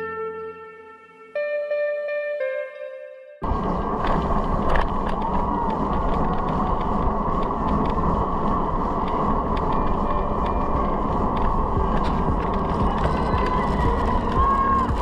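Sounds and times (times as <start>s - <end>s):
slowly moving car rumbling: 3.4s - 15.0s.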